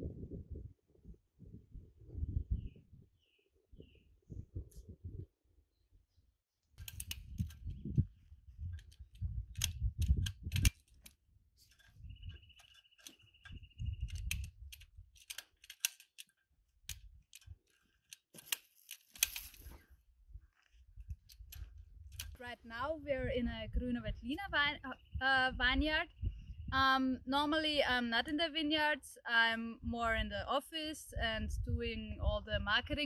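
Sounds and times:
wind on microphone: 0:00.0 - 0:05.4, 0:06.8 - 0:11.0, 0:11.8 - 0:12.6, 0:13.3 - 0:15.2, 0:20.2 - 0:27.7, 0:31.1 - 0:33.0
pruning shears snipping: 0:15.2 - 0:19.8.

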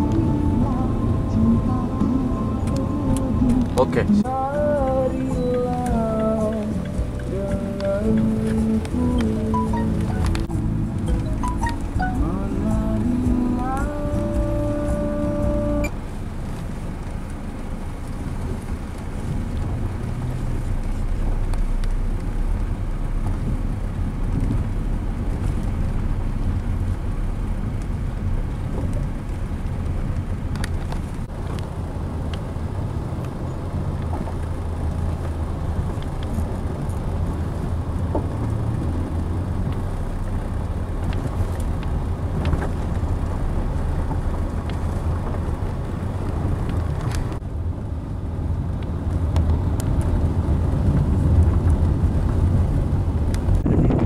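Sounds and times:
car engine and tyres rumbling: 0:00.0 - 0:54.0
sharp ticks and knocks: 0:02.0 - 0:15.6.

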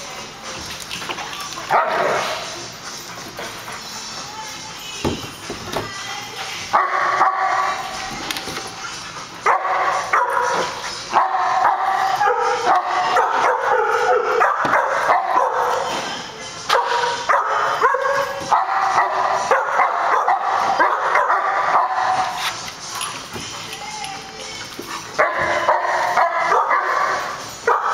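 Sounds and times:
dogs barking in play: 0:01.6 - 0:03.0, 0:06.7 - 0:08.0, 0:08.8 - 0:22.7, 0:24.5 - 0:27.9.

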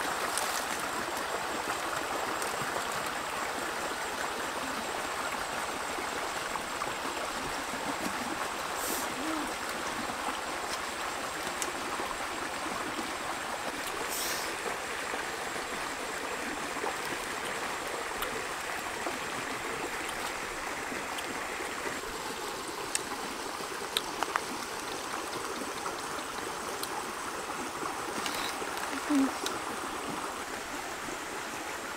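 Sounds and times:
stream rushing over stones: 0:00.0 - 0:31.9.

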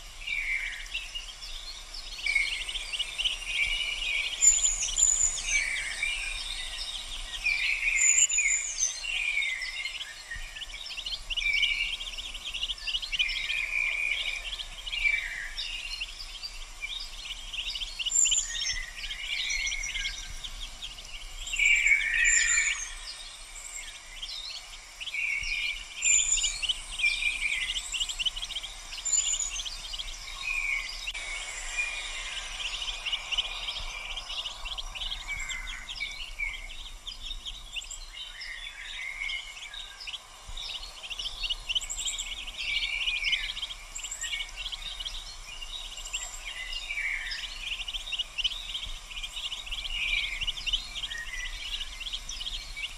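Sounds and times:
ducklings peeping: 0:00.5 - 0:08.3, 0:09.9 - 0:52.9
chirping trills: 0:15.6 - 0:52.9.

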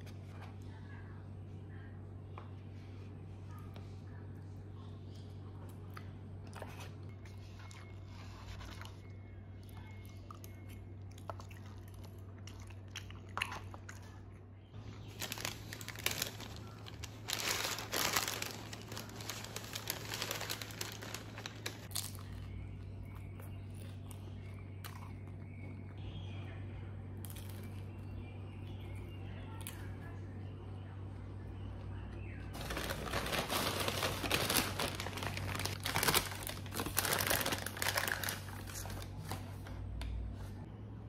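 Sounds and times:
steady low hum: 0:00.0 - 0:41.0
paper bag crinkling: 0:15.0 - 0:22.1, 0:32.6 - 0:39.5.

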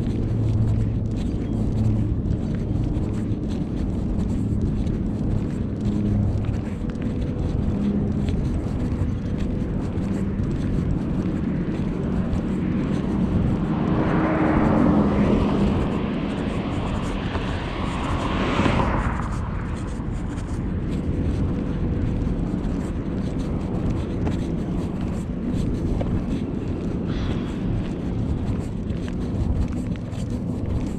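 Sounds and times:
steady low rumble: 0:00.0 - 0:30.9
vehicle passing: 0:00.0 - 0:30.9.

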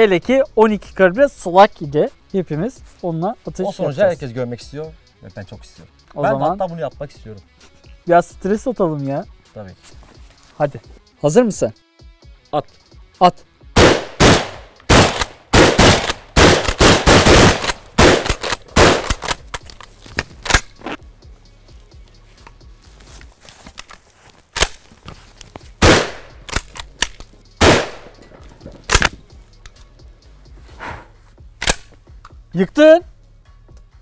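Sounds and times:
shotgun shots: 0:13.8 - 0:19.5, 0:25.8 - 0:28.2.

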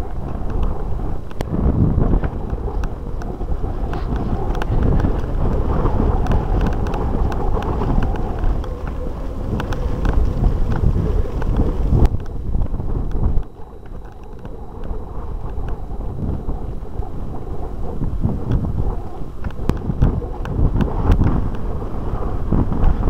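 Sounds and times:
bike rattling clicks and knocks: 0:00.0 - 0:16.4
wind buffeting microphone: 0:00.0 - 0:23.0.

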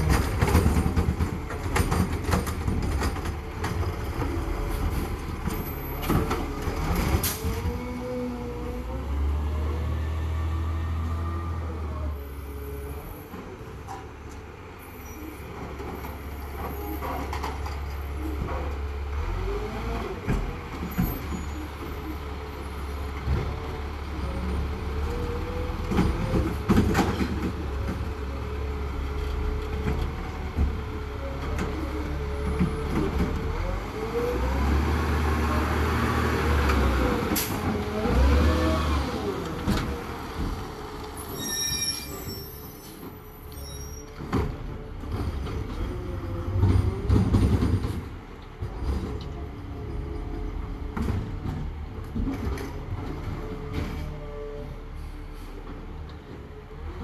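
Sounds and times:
hydraulic whines and squeals: 0:14.8 - 0:18.4, 0:20.9 - 0:22.9, 0:41.2 - 0:44.4.

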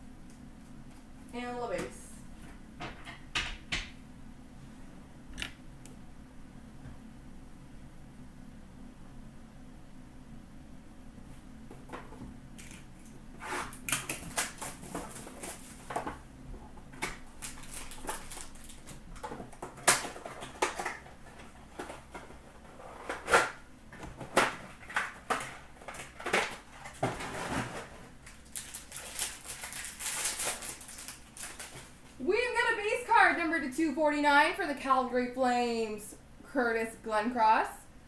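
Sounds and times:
foil wrappers crinkling: 0:12.6 - 0:16.2, 0:17.0 - 0:23.6, 0:24.2 - 0:32.2.

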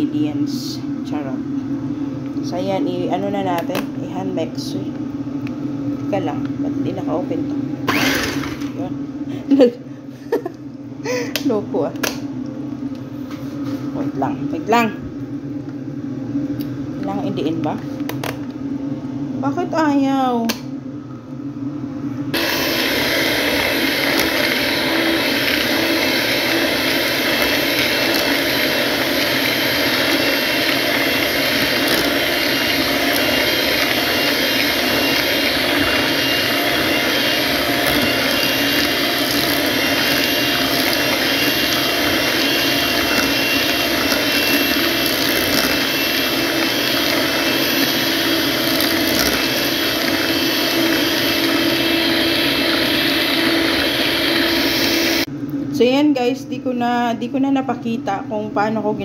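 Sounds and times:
electric hand mixer whisking: 0:07.9 - 0:08.9, 0:22.4 - 0:55.3.

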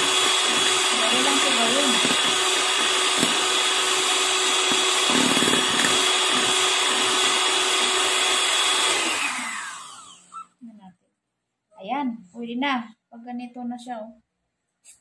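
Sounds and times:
electric hand mixer whining: 0:00.0 - 0:10.5.

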